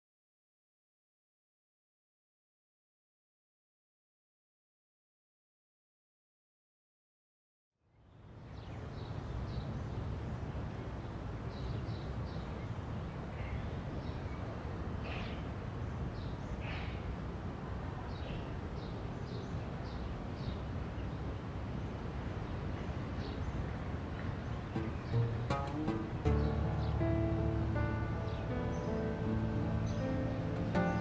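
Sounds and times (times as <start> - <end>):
distant traffic rumble: 8.1 - 31.0
bird chirps: 24.5 - 31.0.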